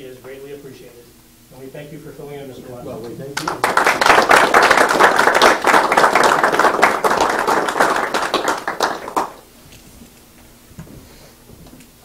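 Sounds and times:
people applauding: 0:03.0 - 0:09.4.

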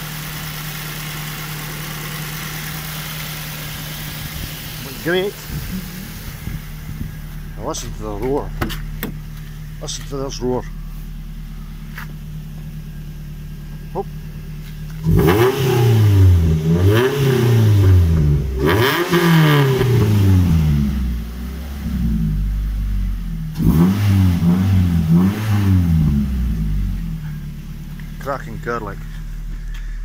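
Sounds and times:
car engine idling and revving: 0:00.0 - 0:30.0.

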